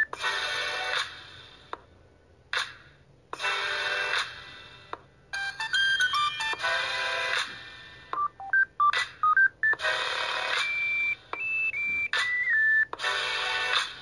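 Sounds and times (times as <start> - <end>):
beeping electronic tones: 8.2 - 9.9, 10.5 - 12.9.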